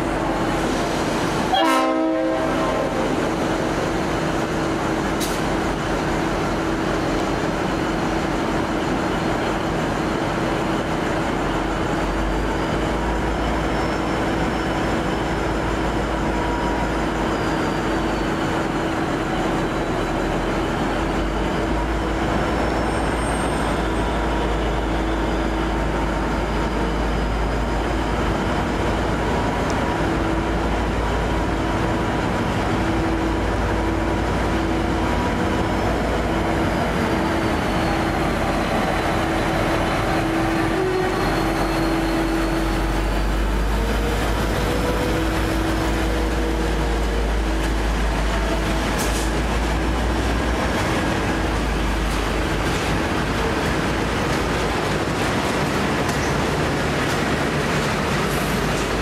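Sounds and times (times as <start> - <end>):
locomotive engine rumble: 0.0 - 59.0.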